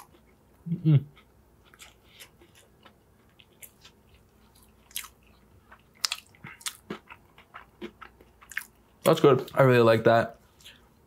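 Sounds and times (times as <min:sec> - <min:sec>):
chewing sandwich: 0:00.0 - 0:09.6.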